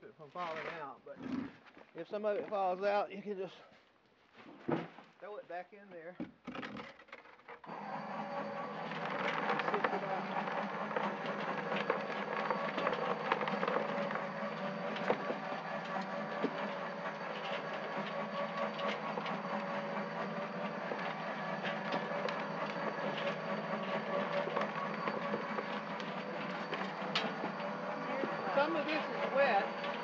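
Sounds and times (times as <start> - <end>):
electric motor humming: 7.6 - 30.0
stones rattling in drum: 8.9 - 30.0.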